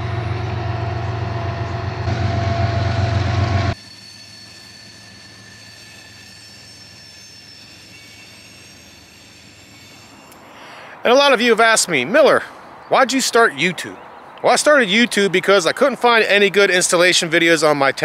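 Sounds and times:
freight train rumbling: 0:00.0 - 0:04.2
train wheel squeal: 0:00.0 - 0:11.1.

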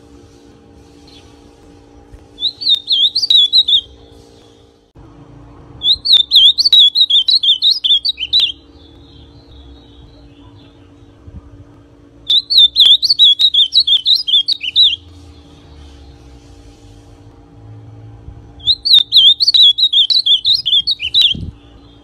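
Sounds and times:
bird singing warbled whistles: 0:02.4 - 0:04.0, 0:05.8 - 0:10.0, 0:12.3 - 0:15.1, 0:18.6 - 0:22.0.

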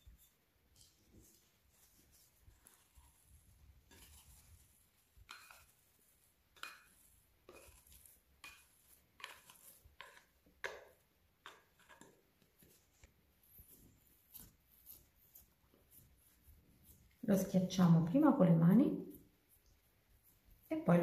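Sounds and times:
plastic scraper on glass bowl: 0:02.6 - 0:12.2.

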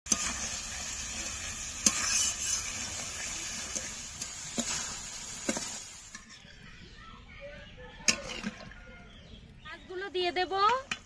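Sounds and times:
food sizzling in a pan: 0:00.1 - 0:06.5.

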